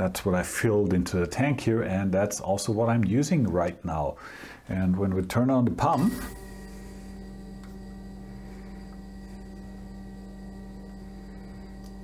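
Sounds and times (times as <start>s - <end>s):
coolant pump humming: 6.0s - 12.0s.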